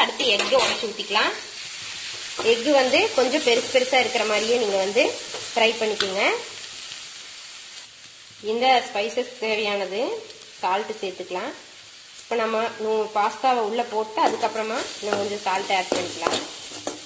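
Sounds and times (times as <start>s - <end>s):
frying sizzle: 0.0s - 17.0s
metal spatula scraping a pan: 14.2s - 17.0s.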